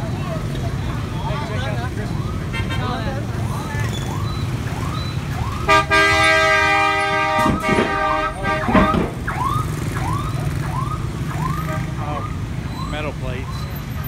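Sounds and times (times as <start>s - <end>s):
motorbike and car engines: 0.0s - 14.0s
vehicle horn blast: 5.7s - 9.2s.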